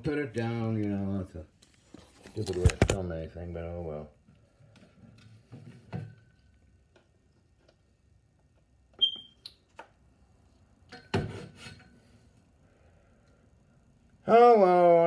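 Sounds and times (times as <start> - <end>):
tablet handling knocks: 2.6 - 3.0.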